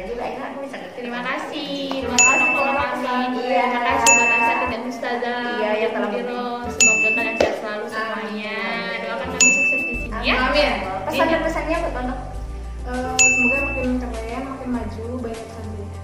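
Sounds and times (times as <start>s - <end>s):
background music with melody: 0.0s - 16.0s
bright ding chime: 2.1s - 3.0s, 4.0s - 4.8s, 6.8s - 7.5s, 9.4s - 10.1s, 13.2s - 14.0s.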